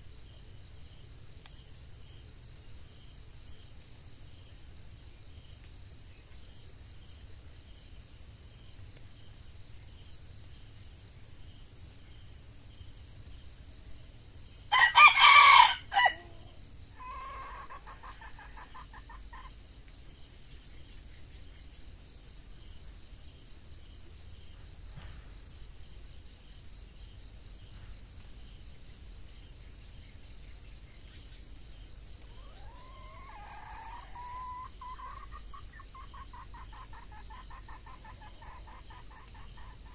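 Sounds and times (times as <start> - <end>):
rooster crowing: 14.7 - 18.6, 32.3 - 35.3.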